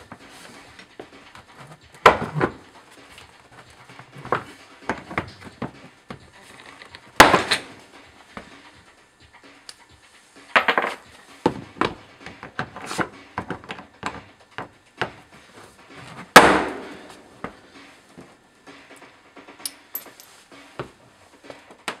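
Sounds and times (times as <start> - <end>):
loud sharp crack: 7.2 - 7.8, 16.4 - 17.0.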